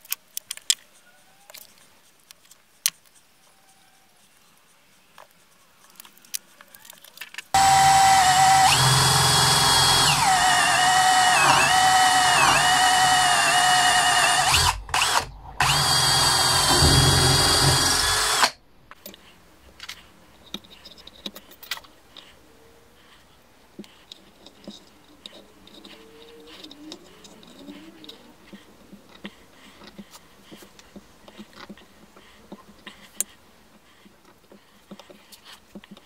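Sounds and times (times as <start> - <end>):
cordless drill whining: 7.6 - 18.6.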